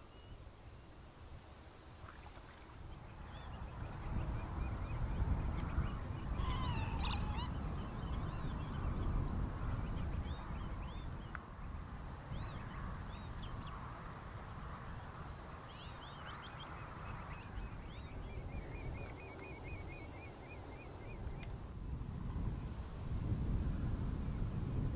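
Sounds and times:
high peeping calls: 6.2 - 8.5
goose gabbling call: 6.4 - 7.6.

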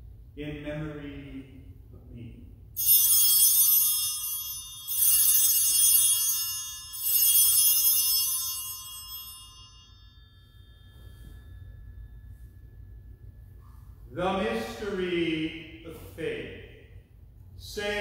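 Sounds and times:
altar bells ringing: 2.8 - 15.8.

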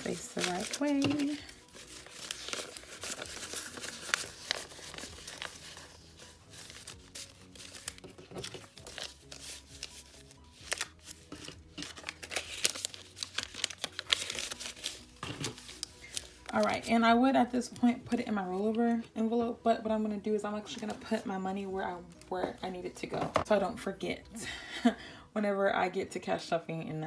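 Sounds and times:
banknotes rustling: 0.0 - 17.0.

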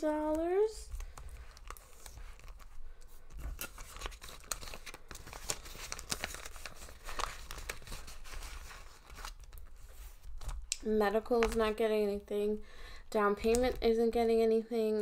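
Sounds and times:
plastic envelopes crinkling: 0.2 - 11.9.

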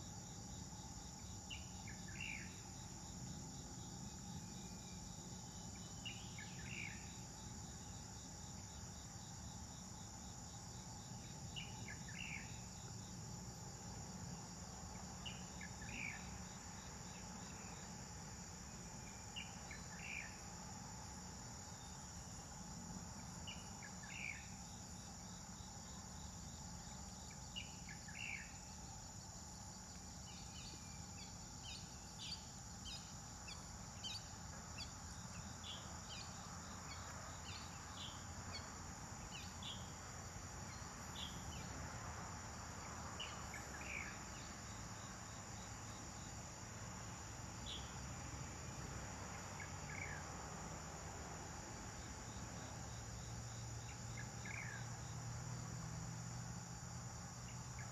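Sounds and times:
insect chorus droning: 0.0 - 57.9.

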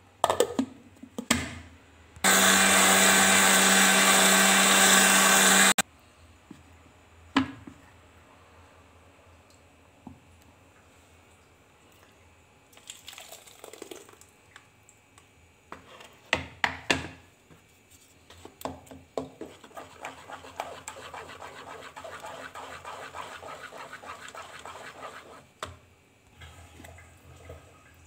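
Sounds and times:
puree pouring: 12.7 - 14.4
spatula scraping mesh strainer: 19.5 - 25.5.

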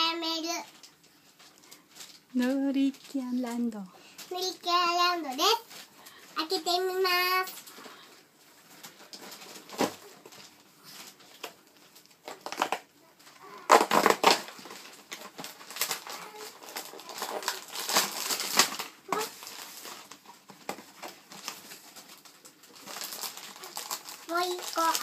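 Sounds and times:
packaging crinkling: 0.5 - 25.0
cardboard box tearing: 13.7 - 14.6.

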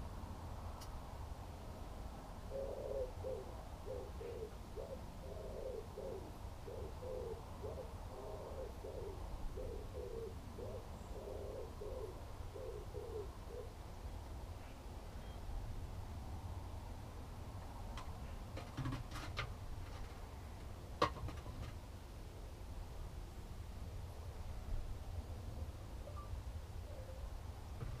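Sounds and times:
pigeon cooing: 2.5 - 13.8, 26.8 - 28.0.

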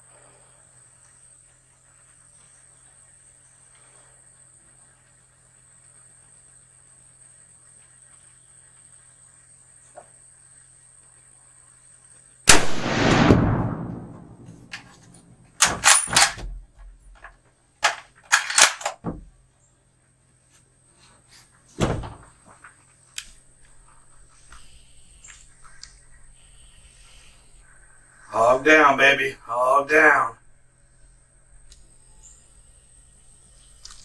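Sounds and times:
rifle shot with echo: 12.5 - 16.4.

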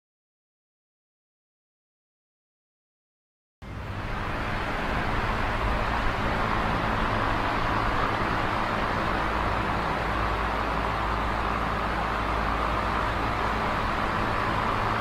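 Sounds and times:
desk fan whirring: 3.6 - 15.0
low motor hum: 3.6 - 15.0.

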